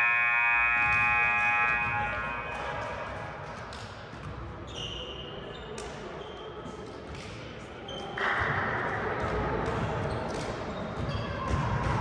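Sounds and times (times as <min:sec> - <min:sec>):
voices echoing: 0:00.0 - 0:12.0
sneaker squeaks: 0:00.7 - 0:08.4, 0:09.6 - 0:12.0
basketball bouncing on gym floor: 0:09.2 - 0:12.0.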